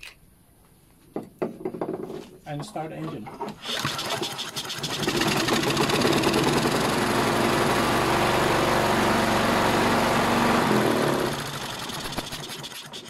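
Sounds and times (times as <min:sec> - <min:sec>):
lawn mower engine running: 0:03.6 - 0:12.7.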